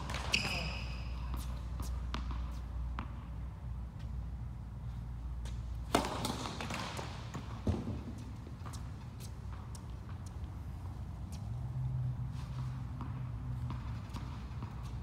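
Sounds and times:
tennis ball bouncing on court: 0.0s - 4.4s, 5.3s - 15.0s
racket striking ball: 5.4s - 8.9s.

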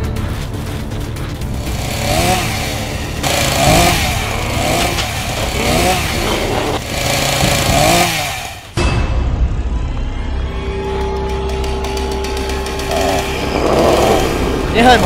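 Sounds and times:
chainsaw engine revving: 1.5s - 8.8s, 11.6s - 15.0s.

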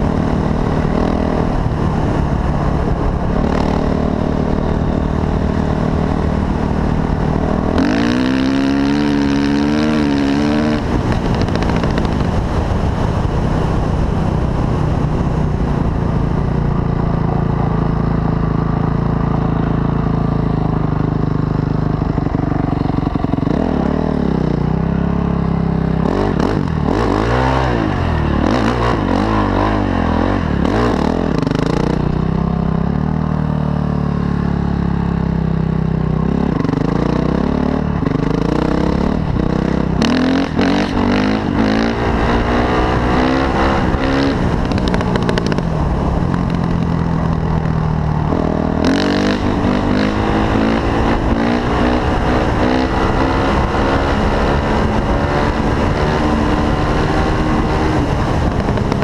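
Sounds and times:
dirt bike engine revving: 0.0s - 12.3s, 26.0s - 32.3s, 36.2s - 47.1s, 48.2s - 59.0s.

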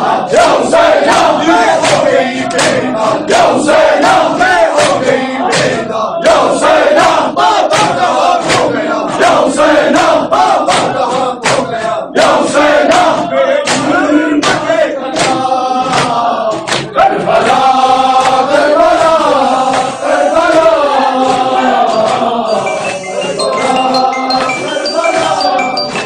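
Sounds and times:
men chanting in unison: 0.0s - 25.9s
hands slapping chests: 1.1s - 3.4s, 7.7s - 8.7s, 10.7s - 11.7s, 12.9s - 17.6s, 18.2s - 19.1s, 19.7s - 20.7s.

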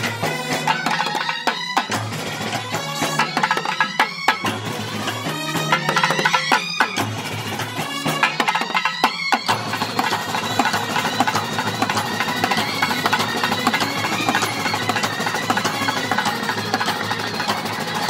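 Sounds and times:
brass horns: 0.0s - 3.8s, 4.6s - 9.0s
drums beating fast rhythm: 0.0s - 18.0s.

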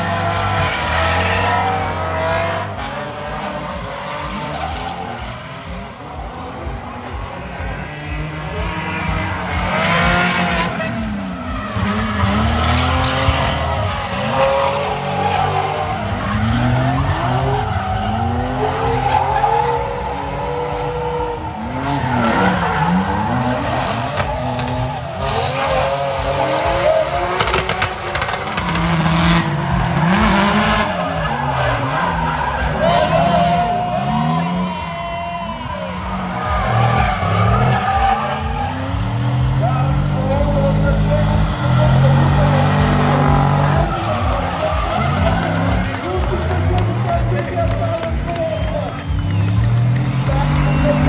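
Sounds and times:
car engines revving: 0.0s - 51.0s
tyres squealing: 8.3s - 51.0s.

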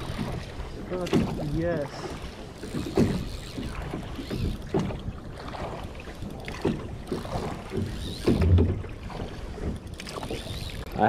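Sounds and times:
oars working: 0.0s - 11.0s
water washing against boat hull: 0.0s - 11.0s
wooden knocks: 6.6s - 8.9s
low thump: 7.8s - 8.8s.

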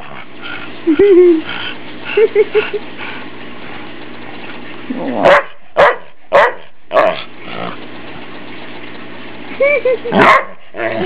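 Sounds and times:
dog barking: 5.2s - 7.2s, 10.2s - 10.6s.

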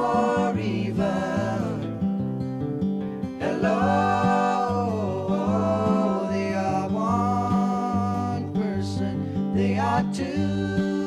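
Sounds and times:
plucked acoustic guitar: 0.0s - 11.0s
person singing long notes: 3.4s - 11.0s.

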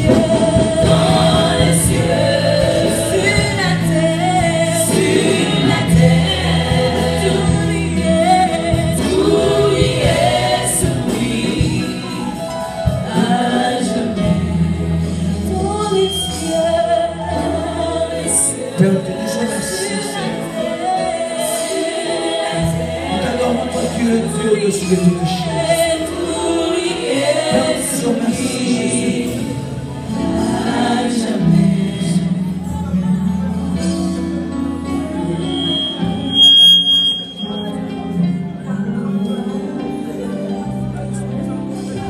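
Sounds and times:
women's choir singing: 0.0s - 32.9s.

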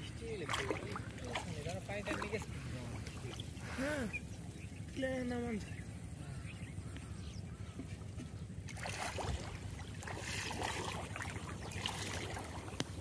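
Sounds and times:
water sloshing and splashing: 0.0s - 4.0s, 7.8s - 13.0s
steady low hum: 0.0s - 13.0s
fish thrashing in water: 0.3s - 2.6s, 8.7s - 13.0s.

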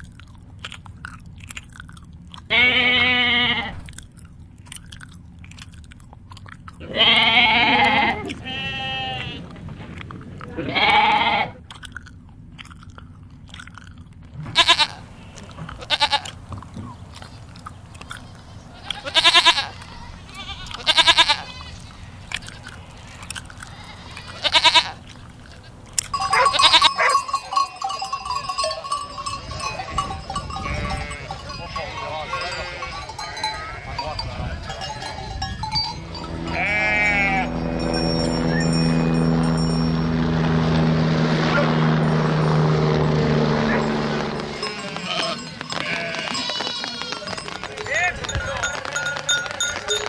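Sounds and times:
flock of sheep bleating: 2.5s - 3.8s, 6.8s - 9.5s, 10.6s - 11.6s, 14.6s - 16.4s, 17.3s - 37.9s, 44.4s - 50.0s
goats bleating: 2.5s - 3.8s, 6.8s - 9.7s, 10.4s - 11.6s, 14.5s - 39.7s, 43.7s - 50.0s.

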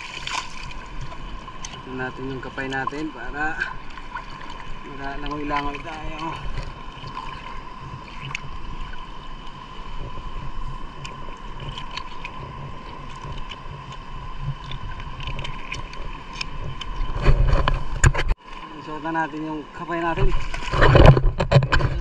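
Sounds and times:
small splashes and clicks: 0.0s - 1.8s, 8.1s - 8.5s, 11.0s - 14.0s, 14.6s - 18.3s
rustle and splash: 0.0s - 22.0s
seawater sloshing: 0.0s - 22.0s.

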